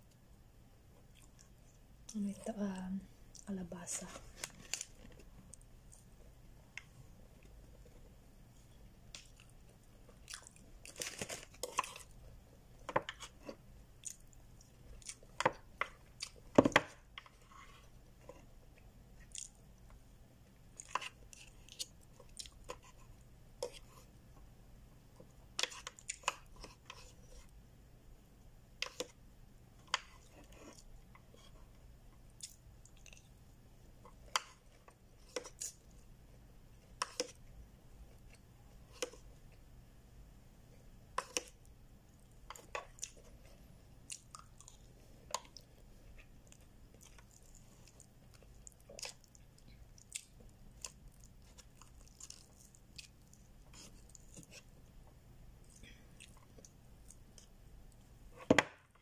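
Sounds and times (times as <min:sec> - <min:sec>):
chewing and crunching: 0:01.0 - 0:02.2, 0:09.2 - 0:20.0, 0:20.6 - 0:24.1, 0:25.6 - 0:27.5, 0:32.2 - 0:36.0, 0:42.2 - 0:54.8, 0:55.6 - 0:58.0.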